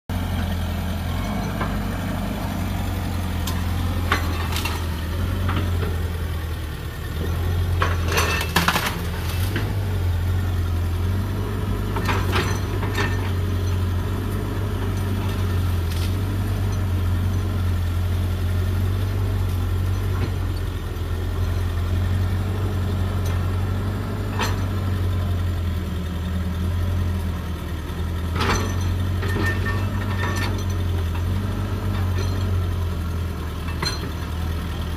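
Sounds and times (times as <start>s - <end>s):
excavator diesel engine droning: 0.1s - 34.9s
metal clanks and knocks: 3.2s - 6.3s, 7.2s - 10.0s, 11.8s - 14.0s, 24.2s - 24.9s, 28.2s - 32.9s, 33.6s - 34.4s.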